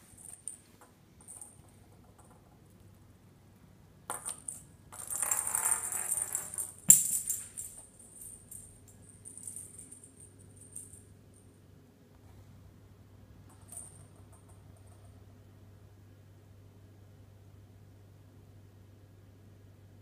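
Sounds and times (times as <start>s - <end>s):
ball knocking on stone countertop: 0.3s - 2.6s, 4.1s - 8.6s.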